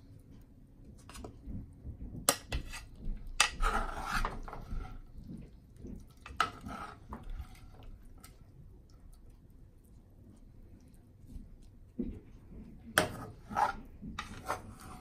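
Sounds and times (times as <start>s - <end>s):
spoon scraping food in a pan: 2.3s - 9.0s, 12.7s - 15.0s.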